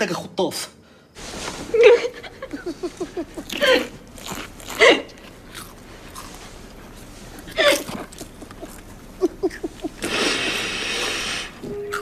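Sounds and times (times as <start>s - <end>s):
people sobbing: 7.5s - 10.9s.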